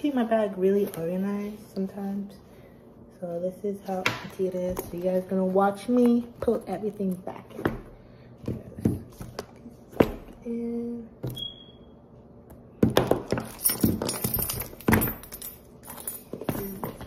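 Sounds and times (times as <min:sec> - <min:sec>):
items clicking and rustling: 0:04.1 - 0:07.9, 0:12.8 - 0:17.0
metallic jangling and clatter: 0:13.4 - 0:17.0.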